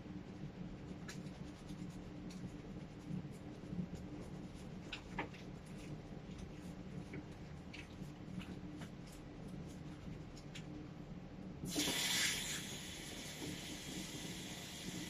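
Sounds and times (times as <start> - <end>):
hands rubbing while washing: 0.6 - 10.8
tap water running into basin: 11.7 - 14.9.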